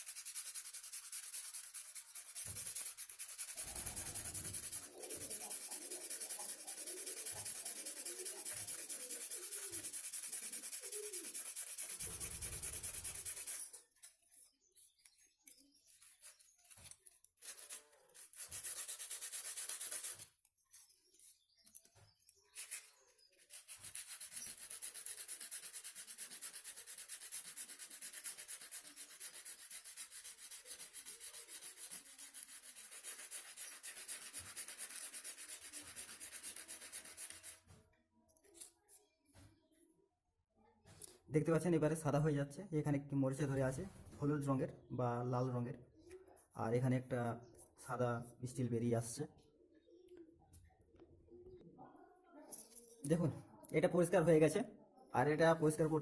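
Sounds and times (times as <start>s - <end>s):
sandpaper rubbing on rusty steel: 0.0s - 14.0s, 15.8s - 20.4s, 22.5s - 37.7s.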